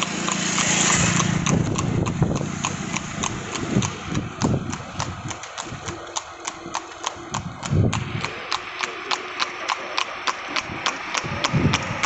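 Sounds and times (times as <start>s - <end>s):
horse hooves clip-clopping on road: 0.0s - 12.0s.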